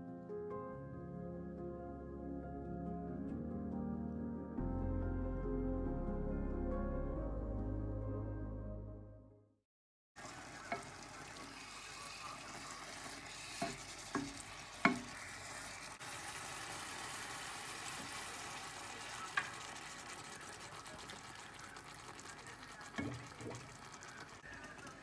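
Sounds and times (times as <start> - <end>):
background music: 0.0 - 9.4
greens sizzling in a frying pan: 10.2 - 25.0
spatula knocking and scraping pan: 13.0 - 15.8.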